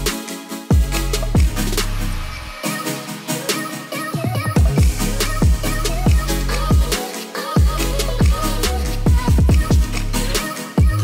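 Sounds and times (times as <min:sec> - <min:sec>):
hi-hat ticks: 0:00.0 - 0:02.0, 0:04.6 - 0:11.0
bass line: 0:00.0 - 0:02.5, 0:04.4 - 0:07.0, 0:07.6 - 0:11.0
deep kick drums: 0:04.6 - 0:06.9, 0:09.1 - 0:09.9, 0:10.8 - 0:11.0.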